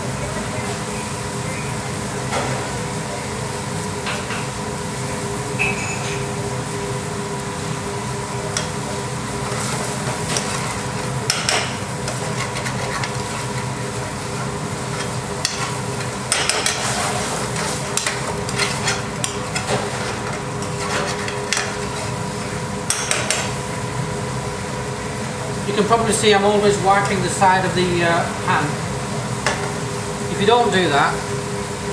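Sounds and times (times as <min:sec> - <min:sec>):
kitchen hum: 0:00.0 - 0:31.9
metal spoon scraping frying pan: 0:16.5 - 0:22.2.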